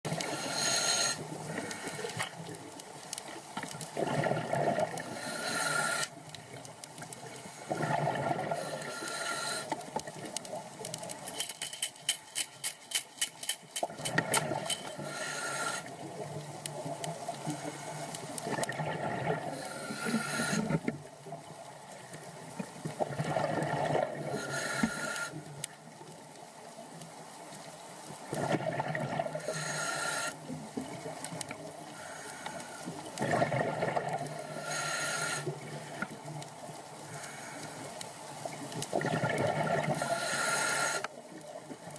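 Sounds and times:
scuba regulator breathing: 0.1 - 2.4, 5.0 - 6.3, 7.2 - 9.9, 14.6 - 16.0, 17.4 - 18.3, 19.5 - 20.9, 24.3 - 25.6, 29.4 - 30.6, 31.9 - 33.2, 34.4 - 36.0, 37.0 - 38.0, 39.9 - 41.2
rattling clicks: 11.0 - 15.0.

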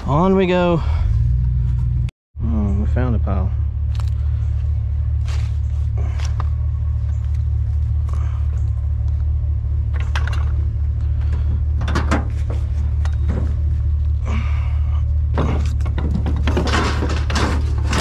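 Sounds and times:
engine rumble: 0.0 - 18.0
bicycle clanking and rattling: 9.9 - 13.8, 15.3 - 18.0.

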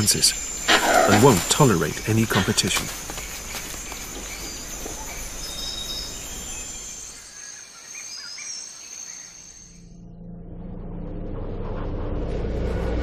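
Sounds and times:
even hiss: 0.0 - 3.0
bird chirps: 0.0 - 9.8
high-pitched insect hum: 0.0 - 10.4
low rumble: 9.9 - 13.0.

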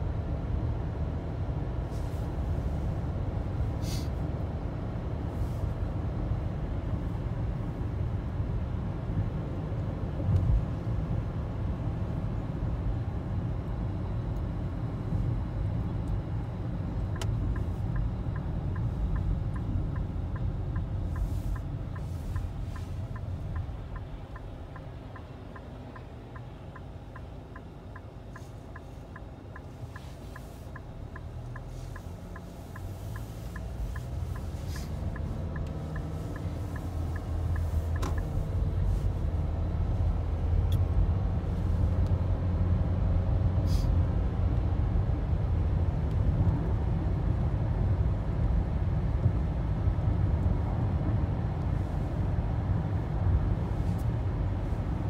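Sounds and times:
car engine and road noise: 0.0 - 55.0
turn signal ticking: 15.4 - 41.2.

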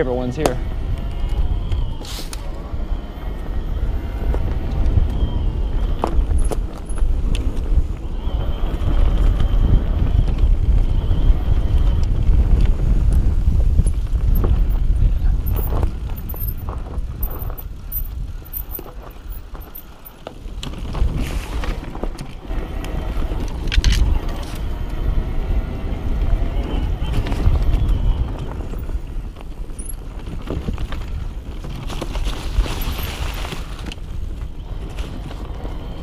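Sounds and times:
bike tyre and frame noise: 0.0 - 36.0
wind rumble on microphone: 0.0 - 36.0
knocks and rattles over bumps: 12.0 - 22.6, 27.2 - 35.6.

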